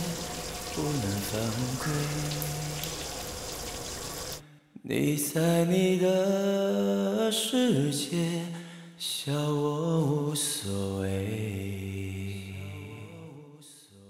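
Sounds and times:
person singing long notes: 0.0 - 3.3.

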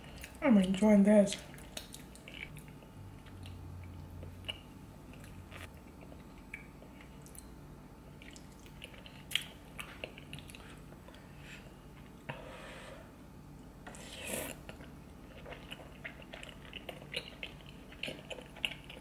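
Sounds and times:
person chewing: 1.3 - 7.6, 8.2 - 11.3, 13.8 - 19.0.

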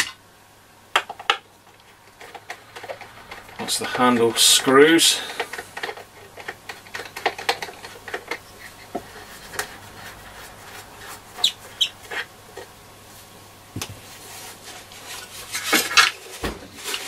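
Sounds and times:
high squeaks: 8.3 - 12.3.

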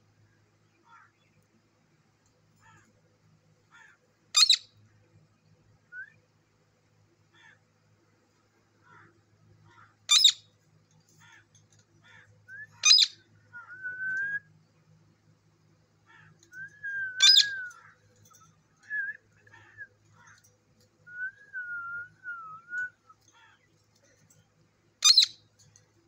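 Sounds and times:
parakeet screeching: 4.4 - 4.6, 10.1 - 10.4, 12.8 - 13.1, 17.2 - 17.5, 25.0 - 25.3
parakeet chirps: 4.4 - 4.7, 10.1 - 10.4, 12.8 - 13.2, 17.2 - 17.5, 25.0 - 25.4
parakeet whistling: 10.1 - 10.4, 12.8 - 13.1, 17.1 - 17.7, 25.0 - 25.3.

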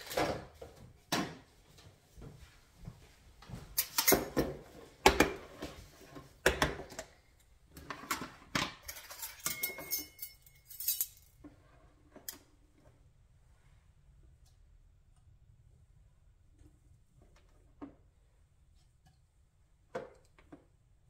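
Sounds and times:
metal spoons clinking on glass: 8.8 - 11.4.

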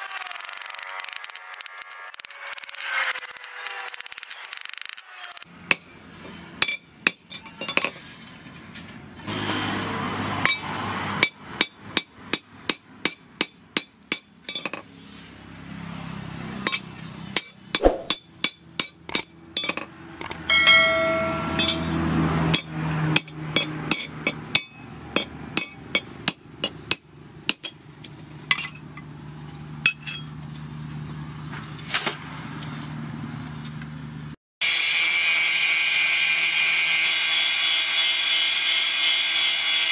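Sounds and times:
angle grinder: 0.0 - 5.5, 34.6 - 39.9
hammer striking steel on anvil: 6.6 - 7.9, 10.4 - 14.8, 16.7 - 27.8.

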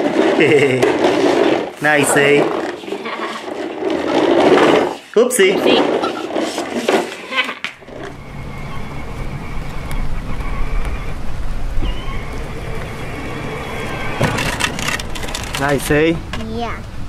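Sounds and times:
plastic wheels rumbling on dirt: 0.0 - 16.8
toy car electric motor whine: 6.3 - 15.9.

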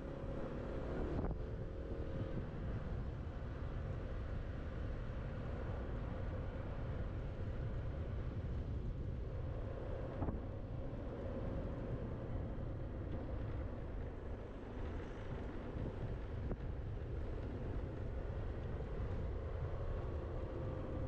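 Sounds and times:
road rumble: 0.0 - 21.0
scooter humming: 11.5 - 21.0.

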